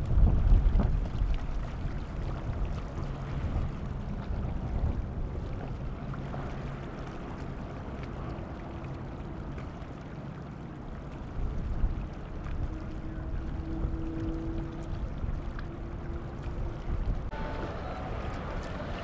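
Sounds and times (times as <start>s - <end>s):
wake rushing: 0.0s - 19.0s
yacht engines droning: 3.2s - 19.0s
higher engine note: 12.7s - 19.0s.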